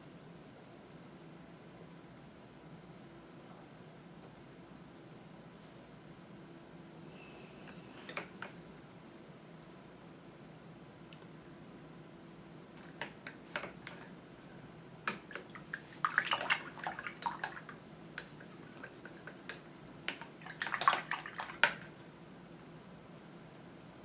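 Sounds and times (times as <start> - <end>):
water splashing and dripping: 15.1 - 19.1, 20.1 - 21.9.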